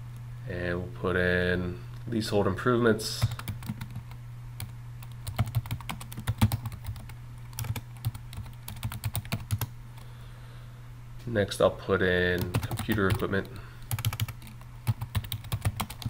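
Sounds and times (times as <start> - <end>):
keyboard typing: 3.2 - 9.7, 12.4 - 16.0.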